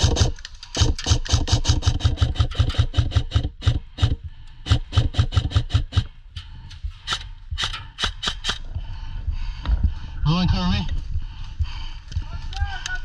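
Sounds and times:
airsoft gun firing full auto: 0:00.0 - 0:04.1.

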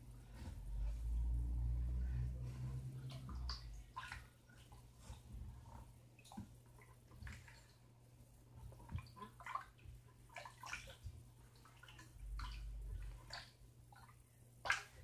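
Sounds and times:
steady low hum: 0:00.0 - 0:07.0
wet sloshing of stirred mixture: 0:00.0 - 0:15.0.

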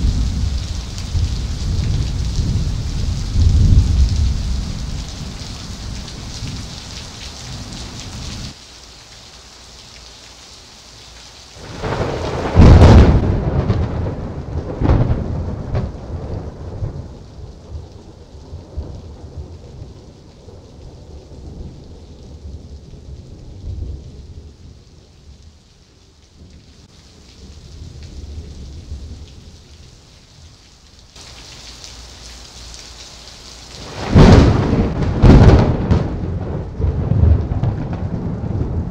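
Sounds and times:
thunder crashing and rumbling: 0:00.0 - 0:06.6, 0:11.6 - 0:17.2, 0:33.8 - 0:38.9
heavy rain: 0:00.0 - 0:38.9.

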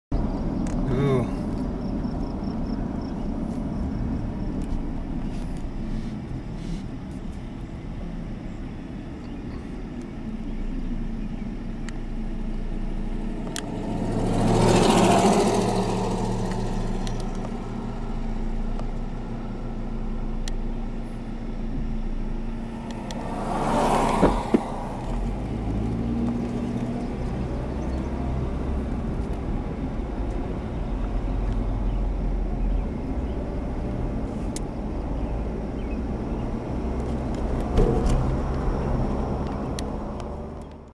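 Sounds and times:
car engine and road rumble: 0:00.1 - 0:40.9
rushes of noise: 0:12.9 - 0:19.3, 0:22.4 - 0:27.5.

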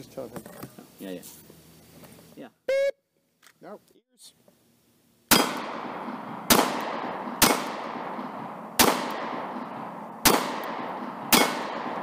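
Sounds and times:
pistol shots with echo: 0:05.3 - 0:12.0.

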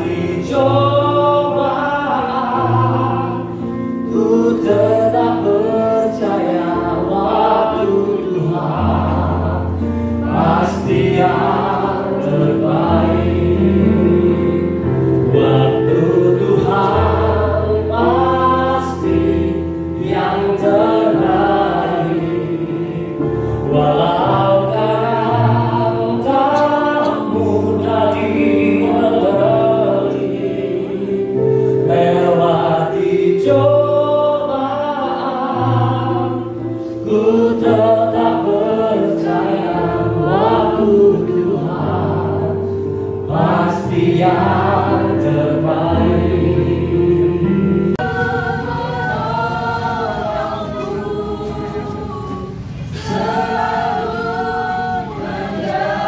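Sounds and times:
bass and keyboard chords: 0:00.0 - 0:56.0
person singing into microphone: 0:43.3 - 0:56.0.

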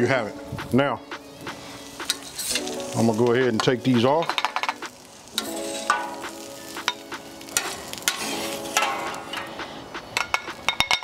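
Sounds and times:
light sizzle: 0:00.0 - 0:11.0
metal spatula scraping griddle: 0:01.6 - 0:02.9, 0:04.3 - 0:10.8.

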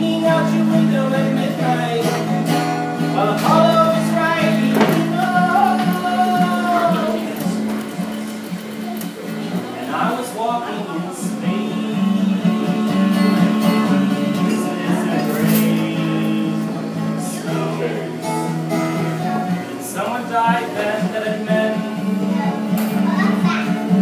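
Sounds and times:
acoustic guitar strumming: 0:00.0 - 0:24.0.

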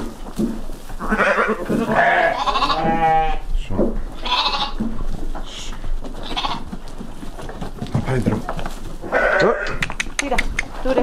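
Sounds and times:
sheep bleating: 0:01.0 - 0:03.5, 0:04.2 - 0:04.8, 0:06.2 - 0:06.7, 0:09.0 - 0:09.8.

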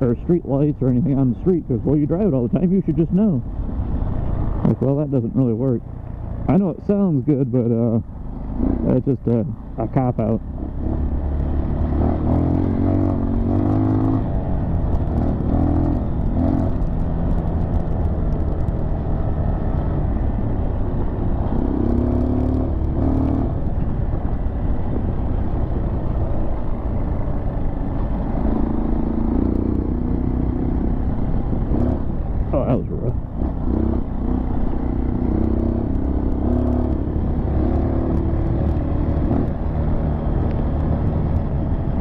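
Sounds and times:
wind rumble on microphone: 0:00.0 - 0:42.0
dirt bike engine revving: 0:10.6 - 0:14.3, 0:33.4 - 0:39.6.

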